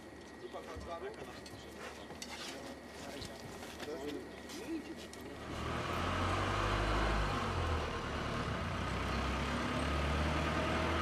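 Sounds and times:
vehicle engine rumbling: 5.3 - 11.0.

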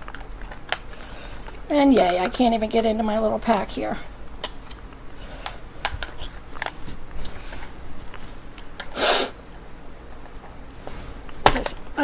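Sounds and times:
short loud hissing burst: 8.9 - 9.4.

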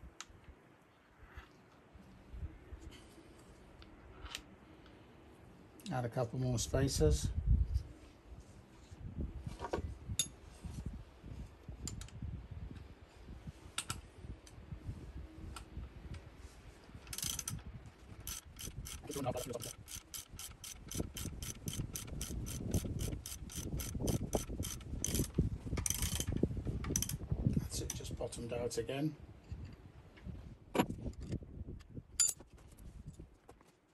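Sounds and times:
ratchet wrench clicking: 17.1 - 17.6, 18.2 - 26.3, 26.9 - 27.2.

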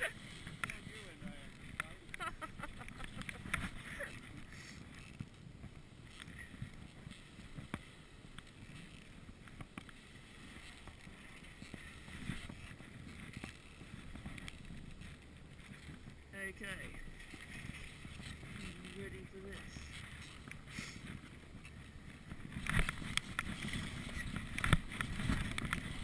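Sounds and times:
skis crunching through snow: 0.0 - 26.0.

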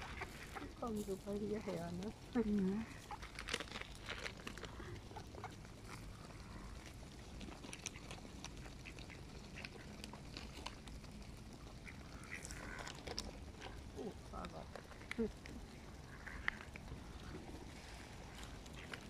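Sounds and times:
ducks quacking softly: 0.0 - 3.3, 7.8 - 10.3, 11.0 - 19.0
bills pecking on pavement: 0.0 - 19.0.

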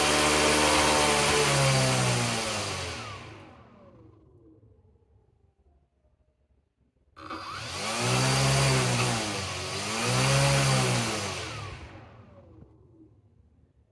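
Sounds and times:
small motor and propeller whine: 0.0 - 4.7, 7.2 - 13.3.

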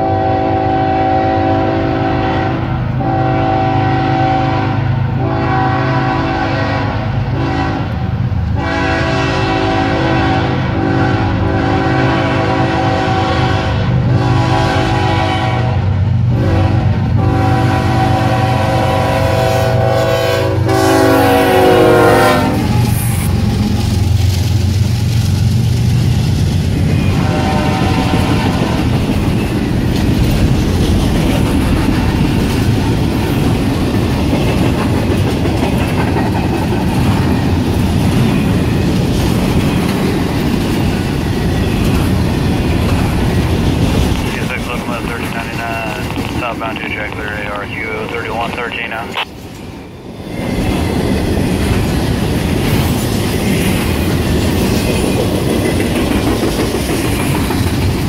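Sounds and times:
locomotive air horn blasts: 0.0 - 7.9, 8.6 - 22.8, 27.2 - 28.8
diesel engines rumbling: 37.4 - 49.2.

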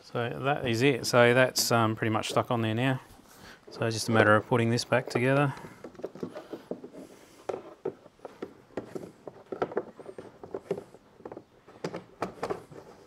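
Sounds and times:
small clicks and knocks on plastic: 5.1 - 13.0.

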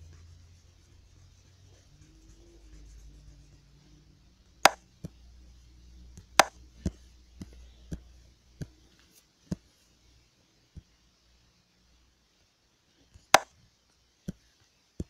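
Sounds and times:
taps on a touchscreen: 6.2 - 8.0.

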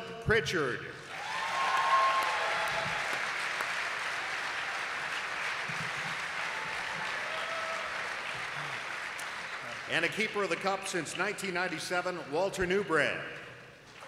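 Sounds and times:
audience applauding: 1.1 - 10.5.

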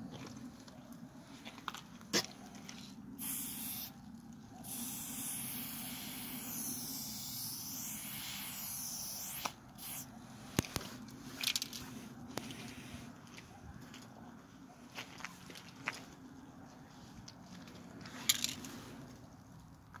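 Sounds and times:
spray paint can hissing: 3.2 - 4.0, 4.6 - 10.8.

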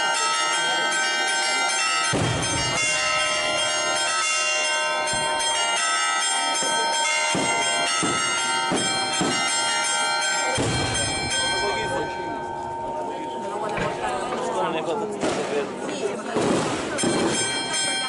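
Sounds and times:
church bells pealing: 0.0 - 14.9, 16.8 - 18.0
sharp bangs: 2.0 - 3.9, 7.3 - 12.8.

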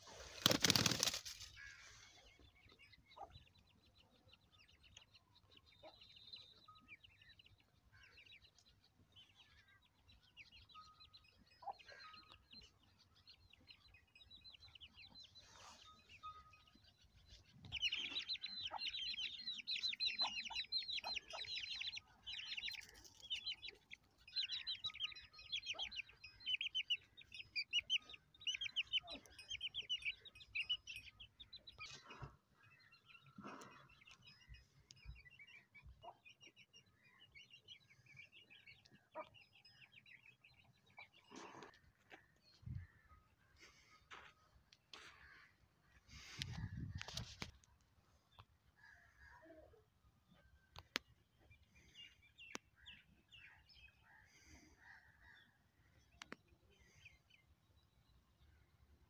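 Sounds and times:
chicks peeping: 17.4 - 32.0.

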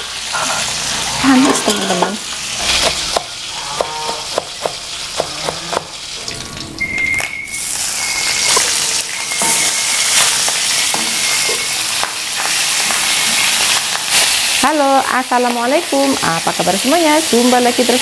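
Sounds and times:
fish sizzling in a wok: 0.0 - 6.6, 7.5 - 18.0
thin high tone: 6.2 - 11.9.

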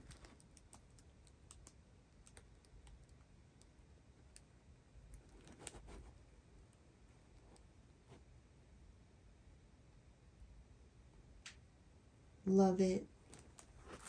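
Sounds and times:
soft rustle: 5.2 - 8.3, 13.2 - 14.0.

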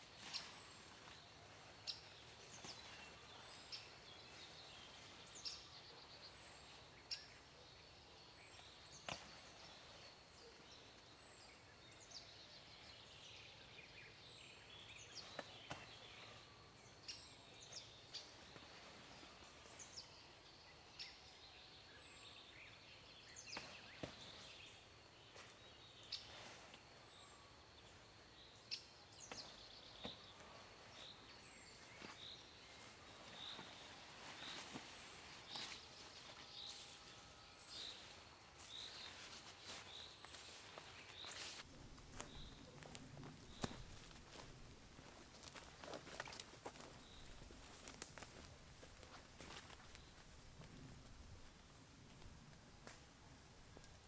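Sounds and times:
leaves snapping and rustling: 41.2 - 47.0, 47.6 - 48.5.

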